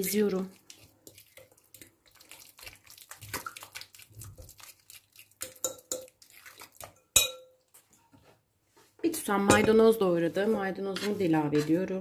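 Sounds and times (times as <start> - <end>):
fork clinking on glass: 5.4 - 6.1, 7.1 - 7.6.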